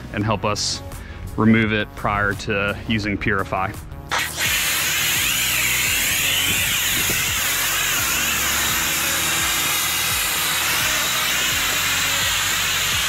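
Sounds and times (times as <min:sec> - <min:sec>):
foam spray hissing: 0:04.1 - 0:13.0
pressure washer motor: 0:04.1 - 0:13.0.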